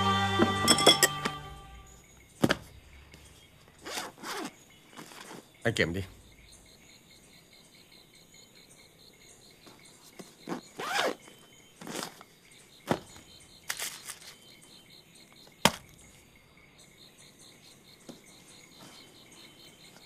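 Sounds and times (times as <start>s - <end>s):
crickets chirping: 0.0s - 20.0s
bag rustling and scraping: 3.3s - 5.6s, 10.4s - 12.3s.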